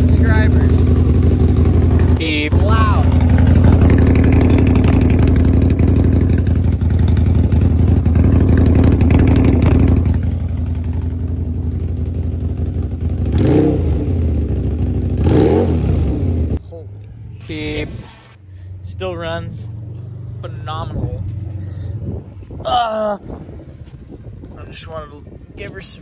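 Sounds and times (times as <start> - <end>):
motorcycle engine running: 0.0 - 22.5.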